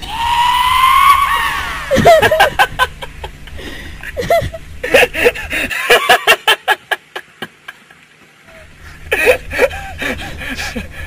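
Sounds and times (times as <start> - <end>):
man laughing hard: 1.4 - 11.0.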